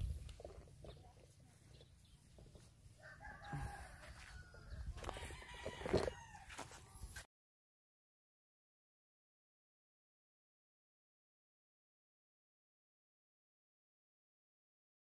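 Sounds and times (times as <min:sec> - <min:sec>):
rooster crowing: 0:03.0 - 0:06.7.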